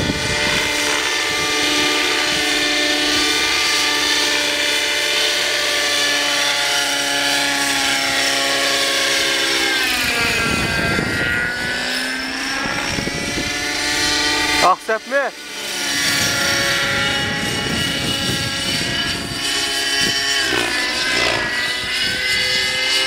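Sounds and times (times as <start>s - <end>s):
gusty low rumble: 0.0s - 4.3s, 9.9s - 14.6s, 15.9s - 22.7s
model helicopter engine whine: 0.0s - 23.0s
rotor noise: 0.0s - 23.0s.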